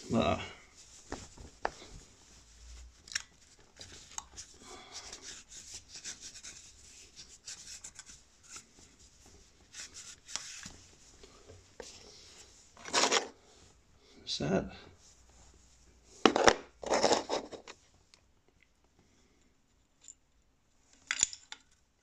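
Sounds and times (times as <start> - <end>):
cloth rubbing on metal: 0.0 - 13.7.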